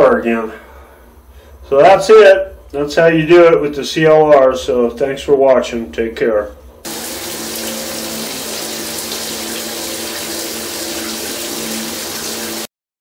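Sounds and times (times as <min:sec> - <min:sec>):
shower head spraying water: 0:06.9 - 0:12.7.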